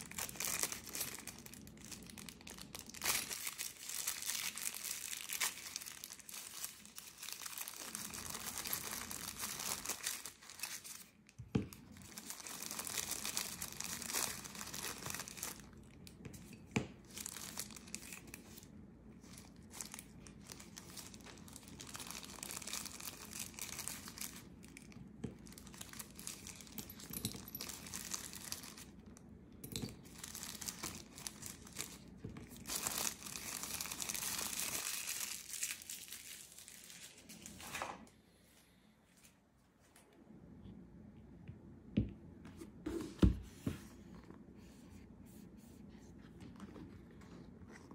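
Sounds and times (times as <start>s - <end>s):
wrapping sheets crinkling and tearing: 0.0s - 16.2s, 16.9s - 29.1s, 30.0s - 37.9s.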